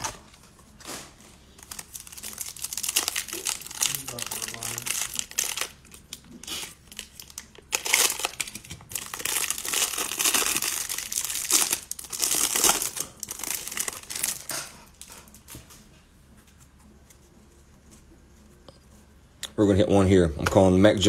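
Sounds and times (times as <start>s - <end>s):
plastic wrapper crinkling: 1.5s - 15.1s.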